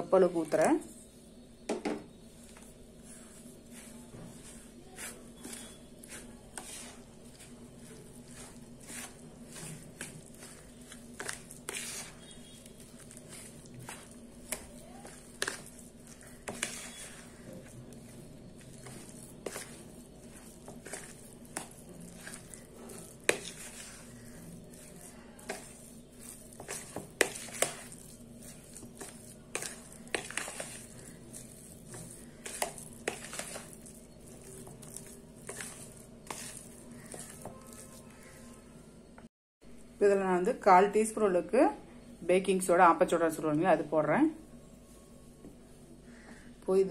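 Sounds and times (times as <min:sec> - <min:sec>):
spatula scraping plastic bowl: 0:02.3 - 0:38.6.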